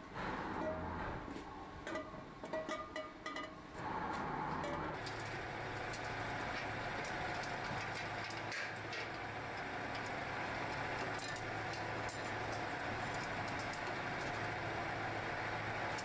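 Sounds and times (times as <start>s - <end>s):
workshop machinery hum: 3.8s - 16.0s.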